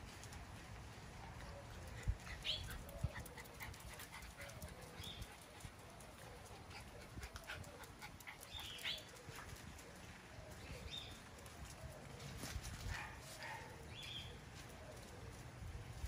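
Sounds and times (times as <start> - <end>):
dogs scuffling on paving: 0.0 - 16.0
dogs panting: 1.2 - 10.2.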